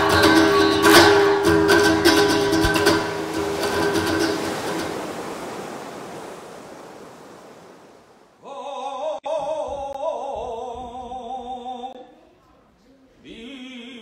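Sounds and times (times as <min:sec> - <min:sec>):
person singing with vibrato: 0:00.0 - 0:03.1, 0:08.4 - 0:12.4, 0:13.2 - 0:14.0
surf-like noise: 0:00.0 - 0:08.4.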